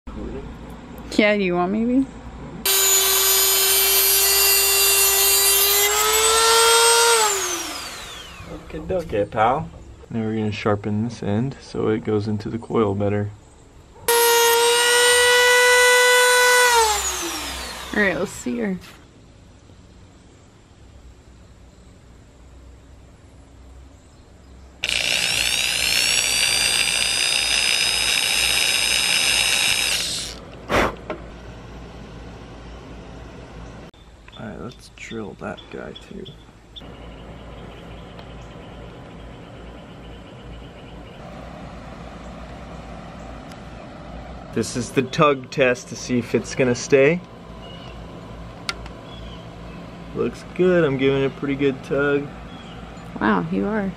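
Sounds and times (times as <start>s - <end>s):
rotary tool grinding screw: 2.7s - 8.6s, 14.1s - 18.2s, 24.8s - 30.5s
small electric drill whining: 2.7s - 8.7s, 14.1s - 18.5s, 24.8s - 30.5s.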